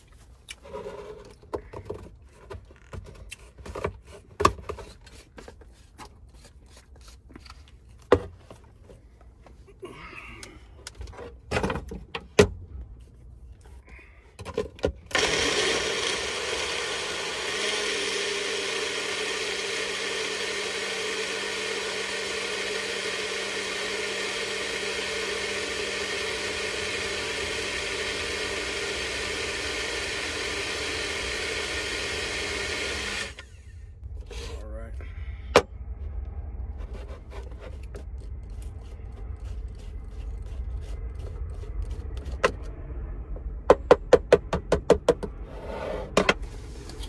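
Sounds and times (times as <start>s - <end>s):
electric blender motor running: 15.1s - 33.7s.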